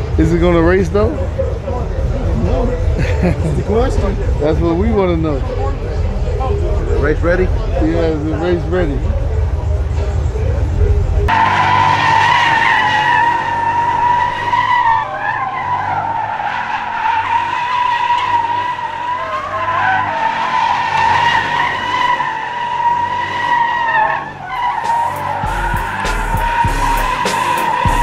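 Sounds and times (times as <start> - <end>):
tyres squealing: 11.3 - 28.0.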